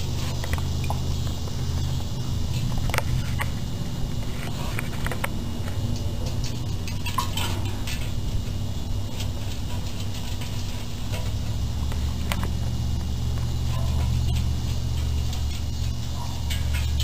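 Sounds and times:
steady low hum: 0.0 - 17.0
light clinks against metal: 13.4 - 17.0.

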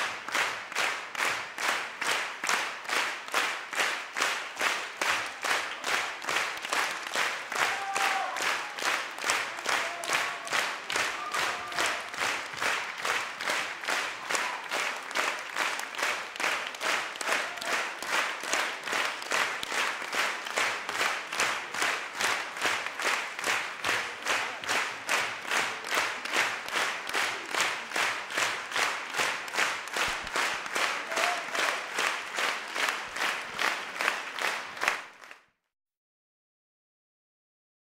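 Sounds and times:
audience clapping in unison: 0.0 - 35.6
faint shouts: 7.6 - 8.8.

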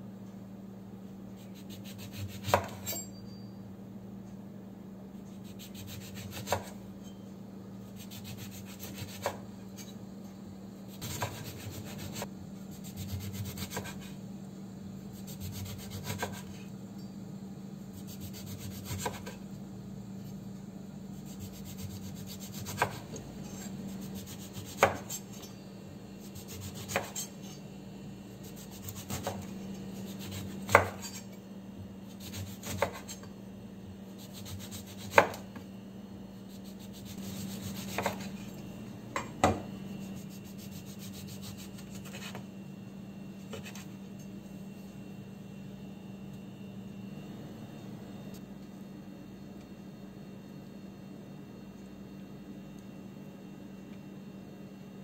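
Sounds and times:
knife knocking on cutting board: 39.2 - 39.7
knife rasping through lemon rind: 40.0 - 42.4.

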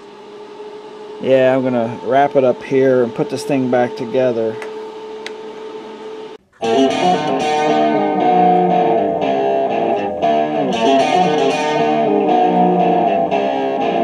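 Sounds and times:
steady hum: 0.0 - 14.0
distorted electric guitar music: 5.8 - 14.0.

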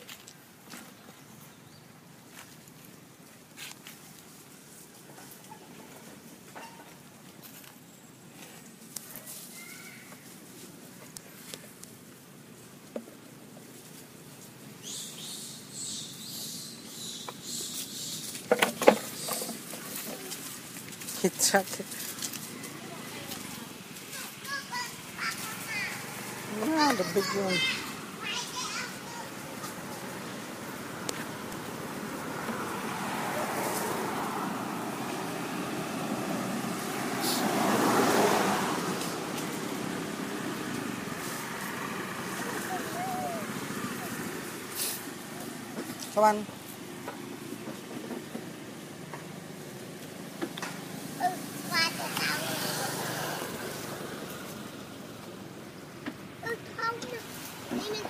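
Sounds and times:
vehicle passing: 19.0 - 58.0.

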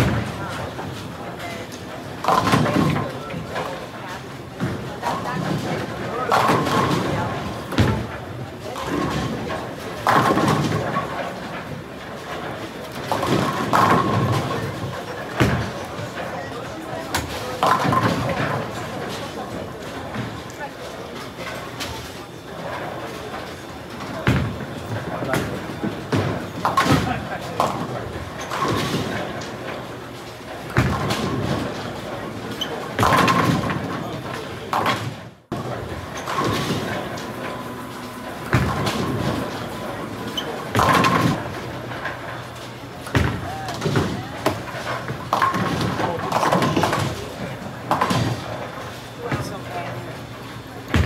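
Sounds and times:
bowling balls rolling: 0.0 - 51.0
bowling pins crashing: 30.4 - 49.5.

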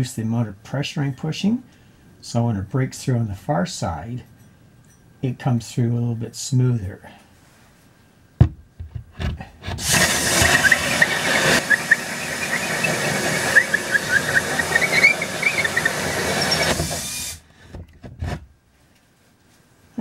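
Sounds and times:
hole saw cutting wood: 9.6 - 17.4
saw teeth squeaking: 9.9 - 17.4.

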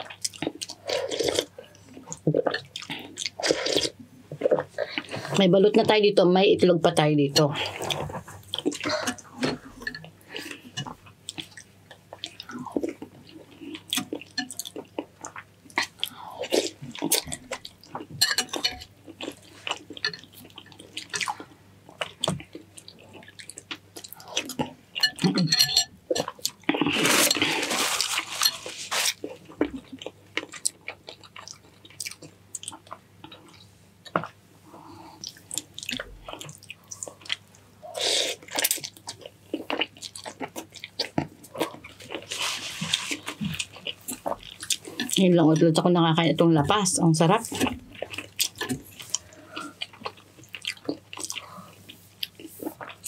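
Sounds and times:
wet chewing: 47.5 - 53.0.

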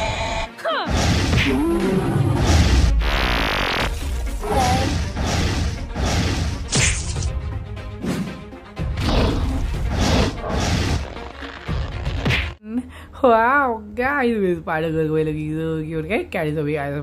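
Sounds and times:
background music: 0.0 - 17.0
cartoon hits and crashes: 6.0 - 7.3.

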